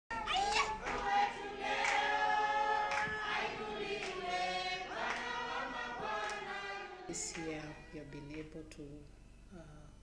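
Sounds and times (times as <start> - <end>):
choir singing in harmony: 0.7 - 7.4.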